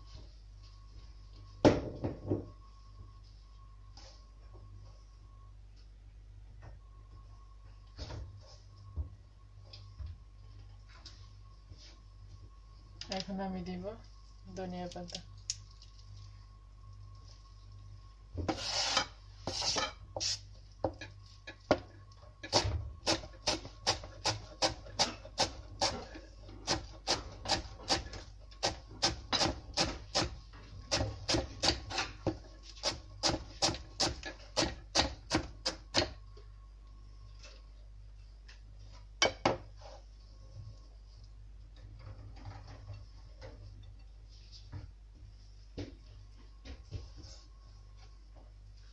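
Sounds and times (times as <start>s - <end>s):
knife chopping on cutting board: 26.6s - 36.1s.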